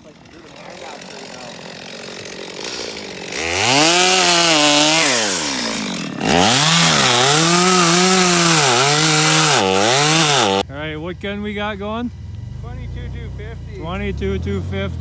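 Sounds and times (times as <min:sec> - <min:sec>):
chainsaw cutting wood: 0:00.0 - 0:10.6.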